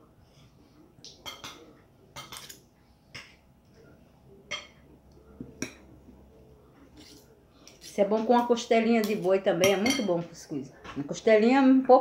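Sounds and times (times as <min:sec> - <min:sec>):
cutlery scraping on plate: 0:01.2 - 0:03.4, 0:06.9 - 0:10.2.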